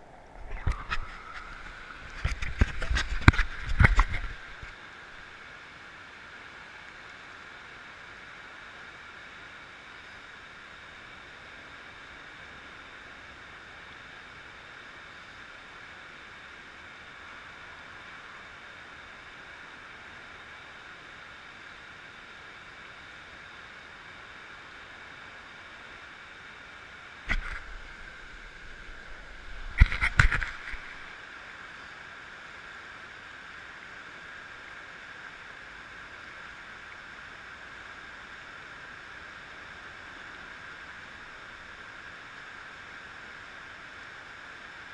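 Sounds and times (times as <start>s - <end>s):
river flowing over rapids: 0.0s - 44.9s.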